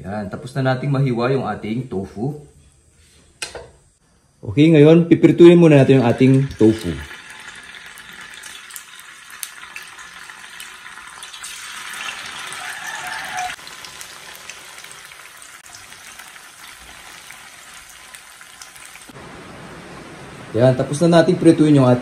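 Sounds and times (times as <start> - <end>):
tofu sizzling in hot oil: 6.2 - 19.2.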